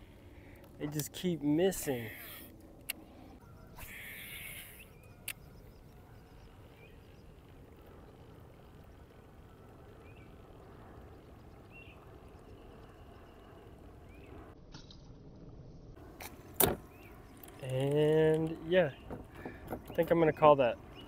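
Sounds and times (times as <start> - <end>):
faint animal chirps: 3.4 - 6.4.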